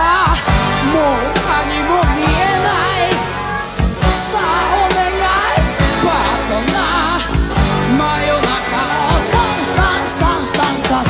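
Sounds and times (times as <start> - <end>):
drums beating: 0.0 - 11.0
live rock band playing: 0.0 - 11.0
man singing: 0.0 - 11.0.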